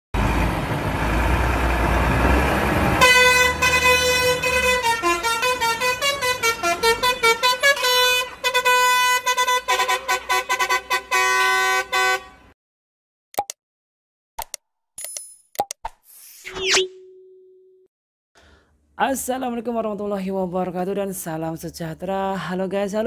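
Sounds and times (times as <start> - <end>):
truck rumbling: 0.2 - 12.5
musical air horn tune: 3.0 - 12.6.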